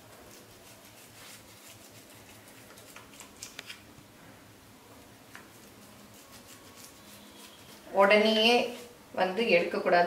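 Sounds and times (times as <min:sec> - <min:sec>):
knife scraping metal tray: 0:06.1 - 0:08.9.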